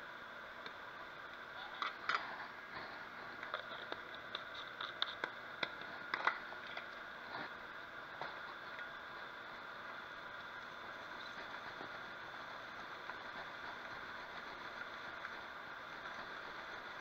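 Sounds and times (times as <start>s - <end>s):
butter sizzling in a frying pan: 0.1s - 17.0s
fat popping and crackling: 0.6s - 9.3s.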